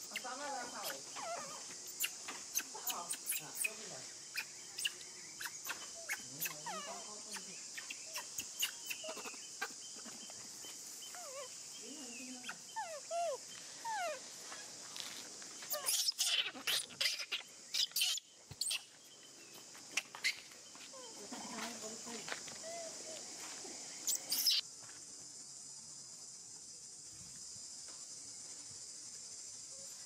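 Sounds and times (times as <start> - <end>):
animal calls: 0.0 - 10.3
high-pitched insect drone: 0.0 - 19.0, 20.0 - 30.0.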